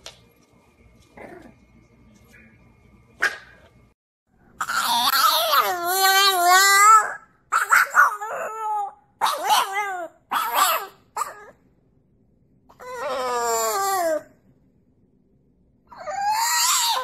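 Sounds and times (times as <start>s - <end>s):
puppy howling: 4.6s - 11.6s, 12.7s - 14.4s, 15.9s - 17.0s.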